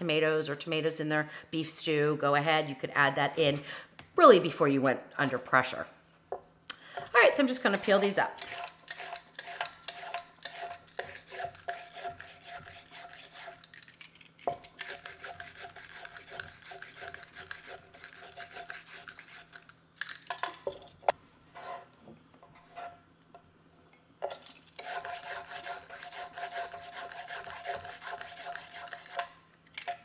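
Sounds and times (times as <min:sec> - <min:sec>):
peeler scraping carrots: 0:07.1 - 0:19.8, 0:24.6 - 0:29.9.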